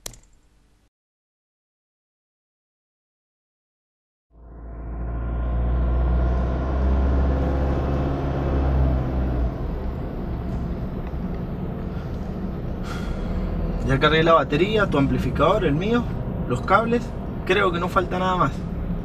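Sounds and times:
car engine and road rumble: 0:04.3 - 0:19.0.

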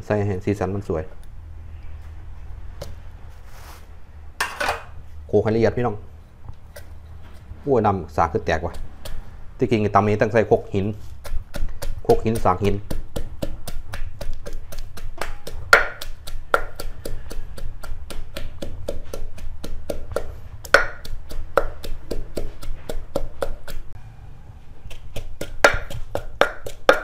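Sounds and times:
pestle pounding in mortar: 0:08.4 - 0:24.0, 0:24.8 - 0:27.0.

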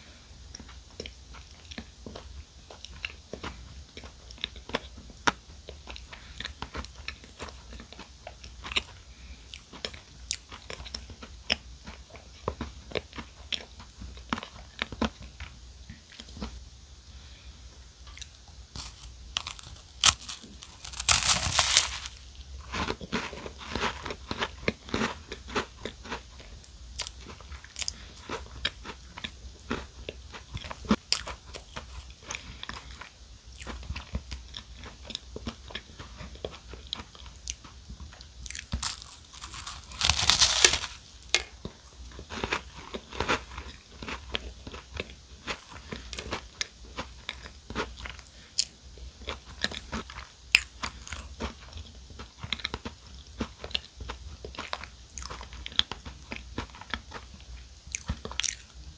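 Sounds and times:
crunchy chewing: 0:01.0 - 0:16.6, 0:18.1 - 0:58.8.

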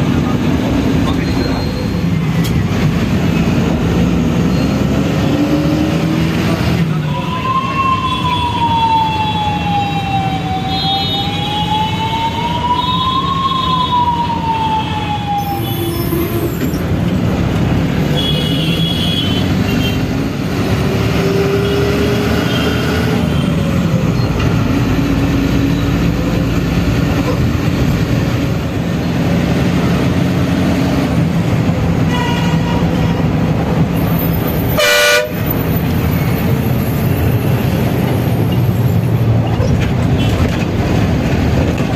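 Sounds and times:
bus engine droning: 0:00.0 - 0:41.9
road noise: 0:00.0 - 0:41.9
siren wailing: 0:06.9 - 0:16.6
vehicle horns honking: 0:18.1 - 0:20.0, 0:32.1 - 0:33.0, 0:34.7 - 0:35.5.

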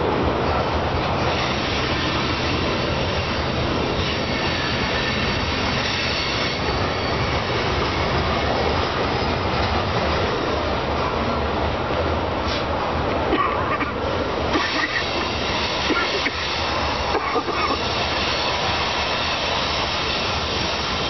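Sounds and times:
train wheels rumbling on rail: 0:00.0 - 0:21.0
faint high wheel squeal: 0:01.2 - 0:09.7.

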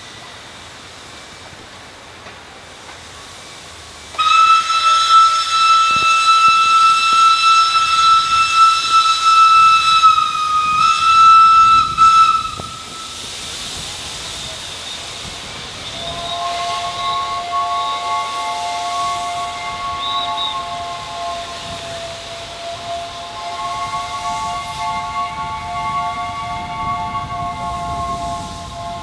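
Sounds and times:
steam hissing: 0:00.0 - 0:29.0
steam locomotive whistle blast: 0:03.1 - 0:29.0
lower chord whistle: 0:15.9 - 0:29.0.

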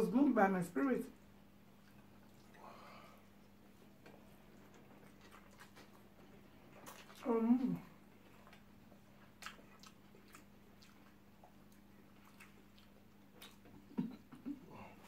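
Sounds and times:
faint steady hum: 0:00.0 - 0:15.0
quiet chewing: 0:01.5 - 0:15.0
wet mouth clicks and lip smacks: 0:09.4 - 0:13.9.

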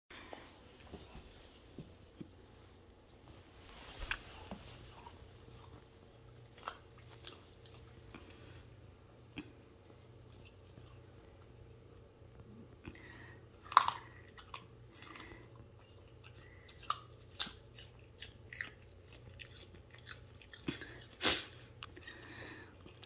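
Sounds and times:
dog crunching carrots: 0:04.1 - 0:08.6, 0:13.6 - 0:22.0.

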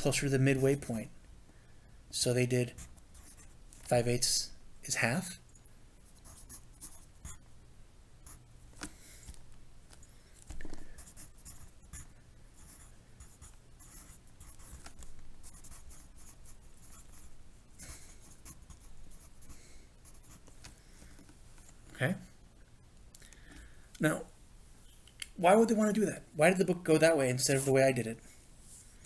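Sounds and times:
faint low hum: 0:00.0 - 0:29.0
pencil scratching on paper: 0:11.0 - 0:17.3, 0:17.9 - 0:20.4.

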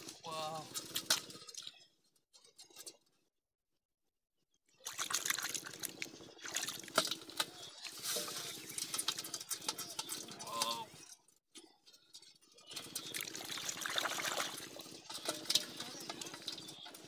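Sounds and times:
hands squelching in wet mud: 0:04.8 - 0:07.2.

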